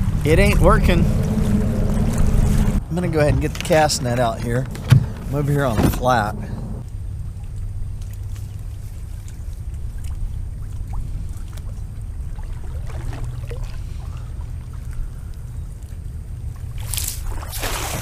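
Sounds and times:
low wind rumble: 0.0 - 18.0
water lapping against kayak hull: 0.0 - 18.0.

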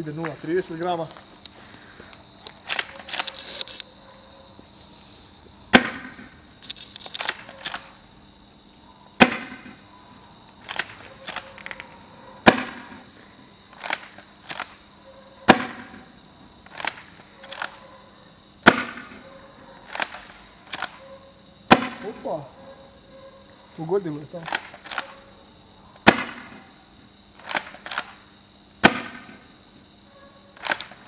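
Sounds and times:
shotgun pump clicks: 2.4 - 3.9, 6.6 - 7.9, 10.6 - 11.8, 13.7 - 14.8, 16.7 - 17.8, 19.8 - 21.0, 24.4 - 25.2, 27.4 - 28.2, 30.6 - 31.0
airsoft shotgun shots: 5.7 - 6.3, 9.2 - 9.8, 12.4 - 13.0, 15.5 - 16.0, 18.6 - 19.2, 21.7 - 22.2, 26.0 - 26.6, 28.8 - 29.4.

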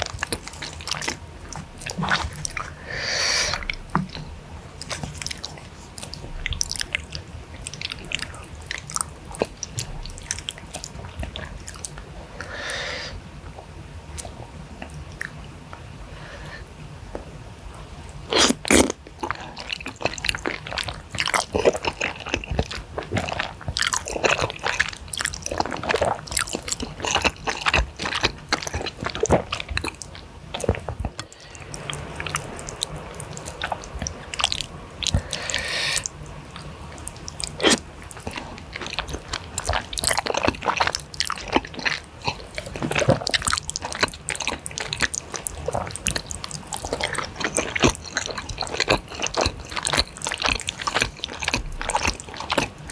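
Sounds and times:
sticky chewing: 0.0 - 2.8, 3.5 - 12.1, 17.8 - 52.9
wet slurping: 18.3 - 52.9.

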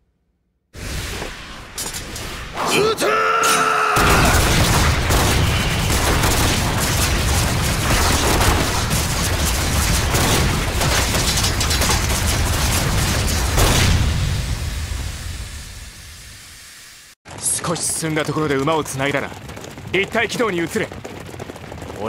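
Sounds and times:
launcher blasts cracking: 4.0 - 16.1.

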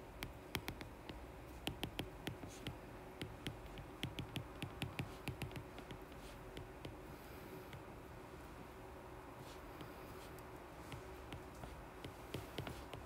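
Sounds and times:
stylus tapping on glass screen: 0.2 - 7.0, 10.9 - 13.0.

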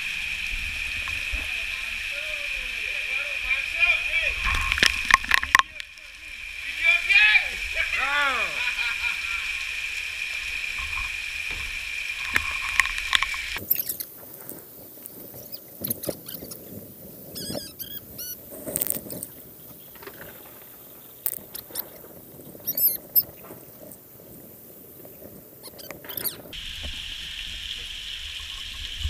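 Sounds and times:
water splashing into buckets: 0.0 - 16.7
rain hissing: 0.0 - 29.0
containers knocking and clanking: 4.5 - 5.8.

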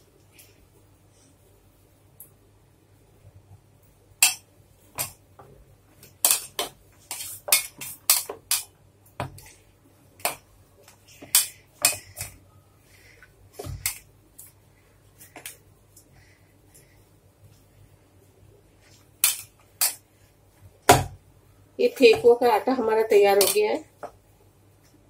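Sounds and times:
dough thumps: 4.2 - 9.6, 13.0 - 14.1, 20.6 - 21.3, 21.9 - 24.2.

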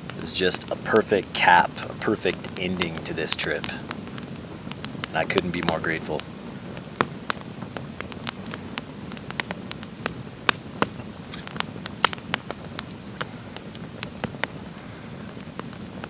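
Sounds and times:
campfire crackling and popping: 0.0 - 16.0
low steady fire rush: 0.0 - 16.0.

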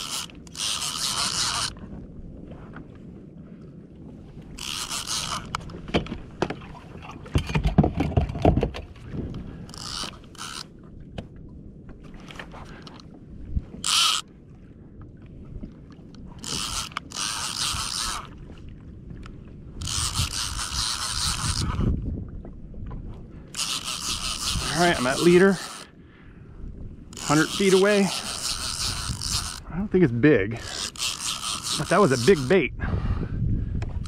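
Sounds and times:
fishing reel gears whirring: 0.0 - 1.8, 4.5 - 5.7, 9.6 - 10.8, 13.7 - 14.3, 16.2 - 18.5, 19.8 - 22.0, 23.5 - 26.0, 27.1 - 29.8, 30.5 - 32.7
dull knocks and bumps: 5.8 - 8.9.

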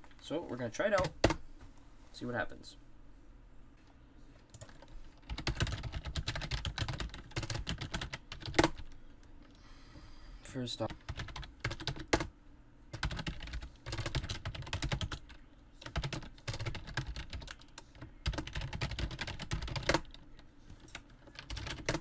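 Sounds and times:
computer keyboard typing: 4.5 - 9.0, 10.8 - 12.3, 12.9 - 22.0.

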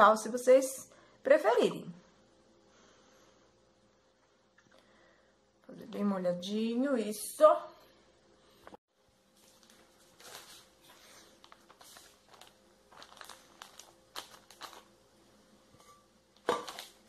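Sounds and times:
plastic film crinkling: 9.4 - 15.0, 16.4 - 17.0.

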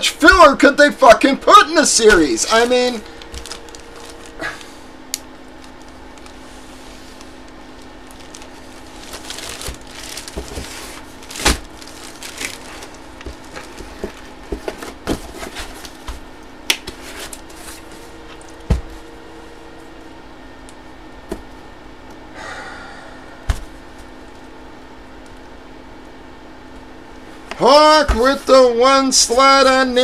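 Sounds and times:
faint steady hum: 0.0 - 30.0
cardboard packaging rustling: 1.7 - 19.1.

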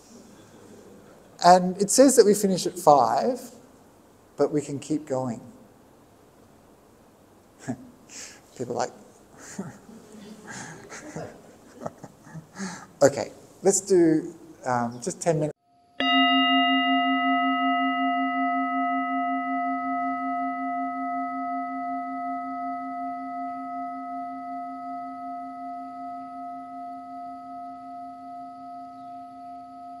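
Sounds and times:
meditation bell ringing: 16.0 - 30.0.

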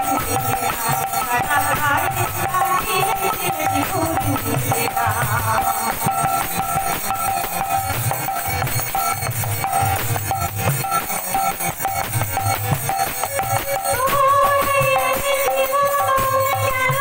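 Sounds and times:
folk song over loudspeaker: 0.0 - 7.0, 13.8 - 17.0
drum beat: 1.6 - 17.0.

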